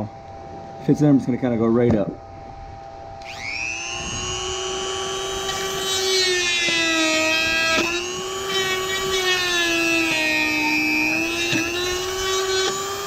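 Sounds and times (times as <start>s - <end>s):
rotary tool whining: 3.2s - 13.0s.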